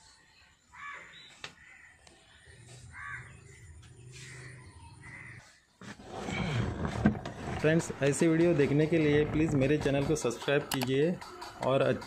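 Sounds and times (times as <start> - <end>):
crows cawing: 0.7 - 2.0, 2.9 - 3.4, 4.2 - 5.6.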